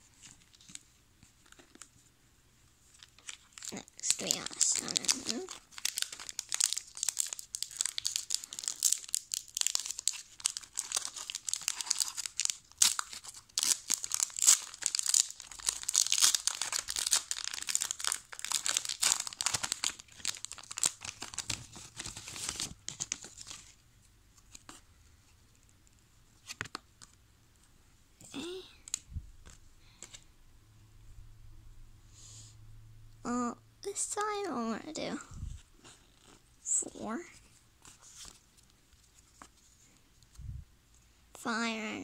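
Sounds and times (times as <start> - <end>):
foil wrapper tearing and crinkling: 3.0 - 23.7.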